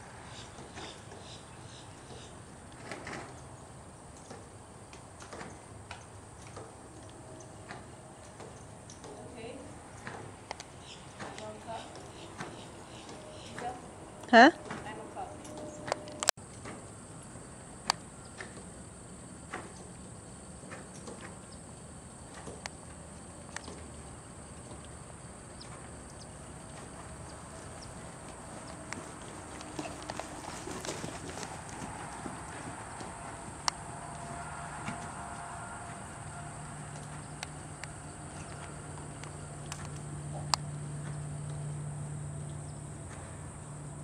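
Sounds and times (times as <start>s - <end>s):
horse hooves on sand: 0.0s - 42.1s
insects droning: 0.0s - 44.0s
horse hoofbeats on sand: 23.6s - 36.1s.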